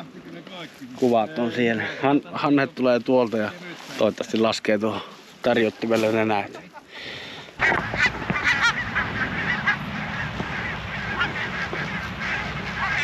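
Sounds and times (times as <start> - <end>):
geese honking: 6.3 - 13.0
steady low rumble: 7.6 - 13.0.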